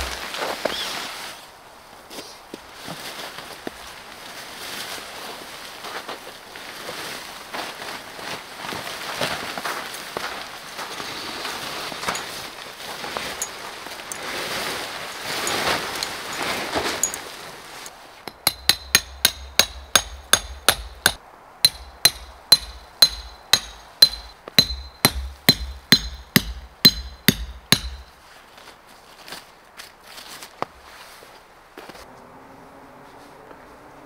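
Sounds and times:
rustling: 2.1 - 32.1
hammer striking metal: 18.3 - 28.1.

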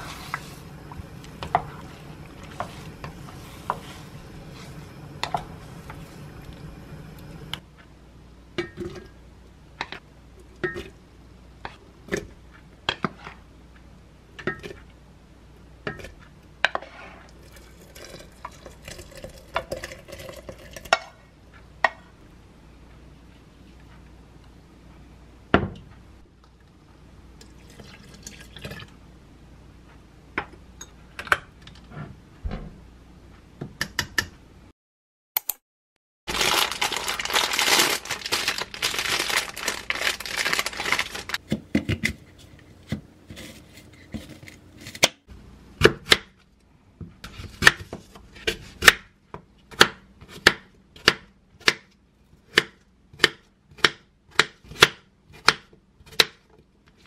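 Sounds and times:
plastic bag crinkling: 36.3 - 41.4.

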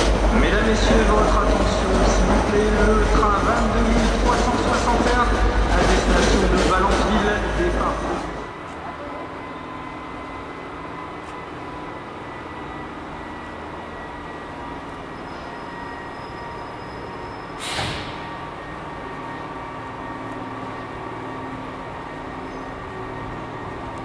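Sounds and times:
electric locomotive humming: 0.0 - 24.0
loud hiss: 17.6 - 18.2.

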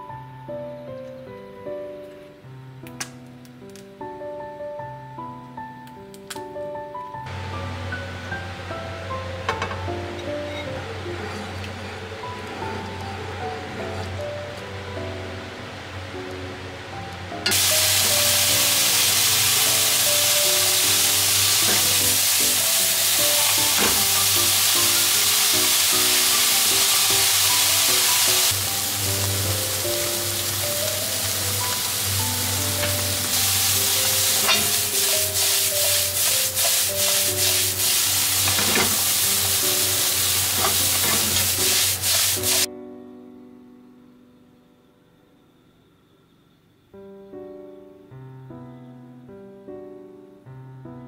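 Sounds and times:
soft background music: 0.0 - 45.9, 46.8 - 51.0
food sizzling in a frying pan: 17.5 - 42.7
food tossed in a pan: 32.8 - 42.7.

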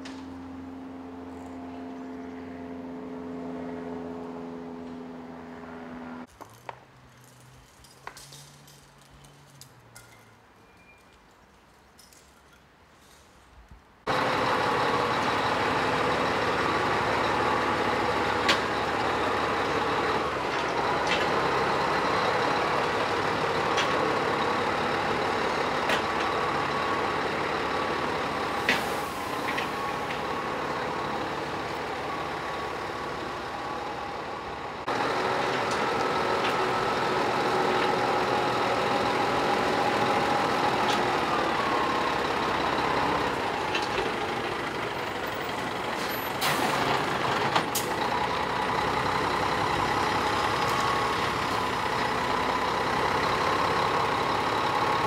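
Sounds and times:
truck diesel engine running: 14.1 - 55.0.

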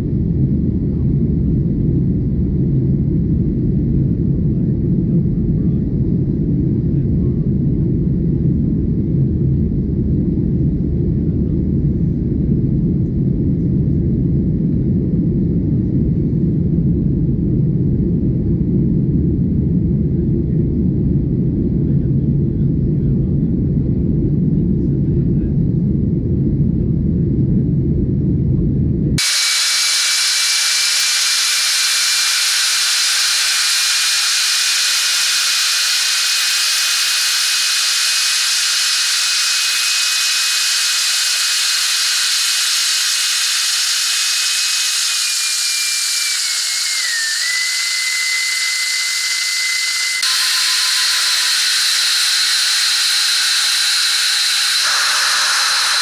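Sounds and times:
jet engine hiss and whistle: 29.2 - 56.0.

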